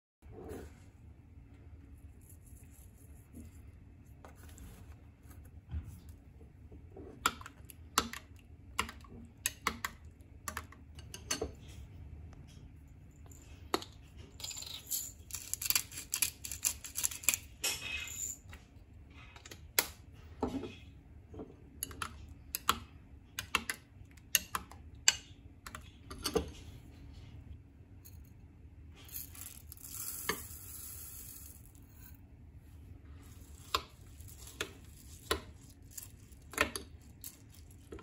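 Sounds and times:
pepper grinder crackling: 0:15.2 - 0:17.5.

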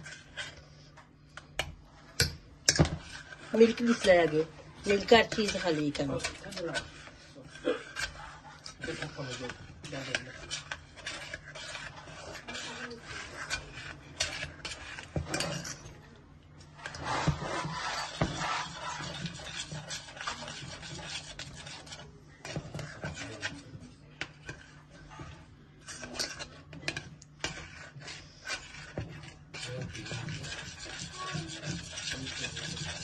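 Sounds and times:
spoon scraping saucepan: 0:00.0 - 0:33.0.

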